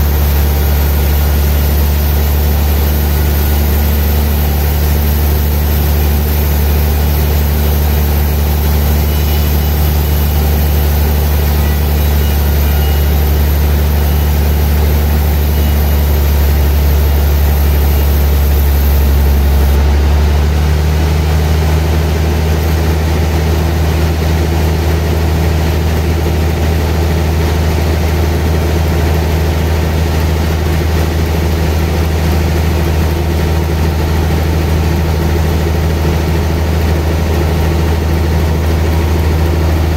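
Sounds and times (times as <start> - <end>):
band saw cutting log: 0.0 - 19.9.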